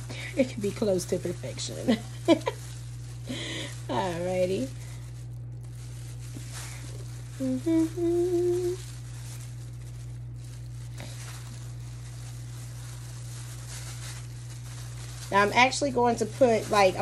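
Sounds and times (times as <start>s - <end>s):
plastic gloves rustling: 0.0s - 17.0s
steady low hum: 0.0s - 17.0s
woman humming: 7.3s - 8.9s.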